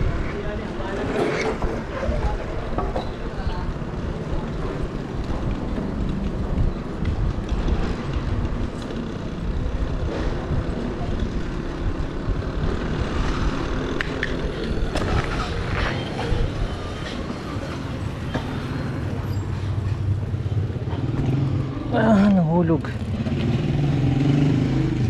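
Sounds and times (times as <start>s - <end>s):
bicycle tyre rumble: 0.0s - 25.0s
wind rush on microphone: 3.6s - 17.3s.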